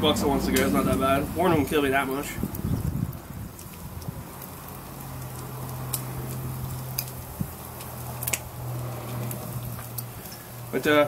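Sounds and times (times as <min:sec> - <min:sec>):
food sizzling on a grill: 0:00.0 - 0:11.0
pops and ticks: 0:02.1 - 0:10.5.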